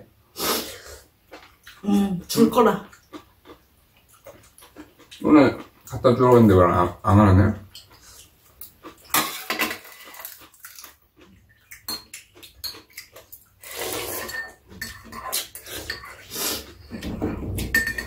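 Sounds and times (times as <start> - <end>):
chewing: 2.8 - 6.0, 7.7 - 9.2, 10.0 - 16.9
slurping: 13.6 - 17.2.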